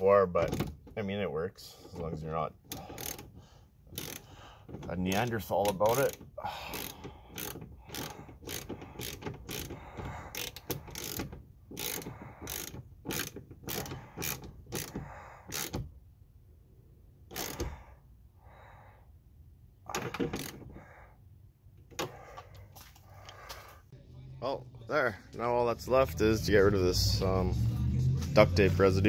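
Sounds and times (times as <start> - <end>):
hand ratchet clicking: 2.7 - 15.9, 17.3 - 17.7, 19.9 - 20.8.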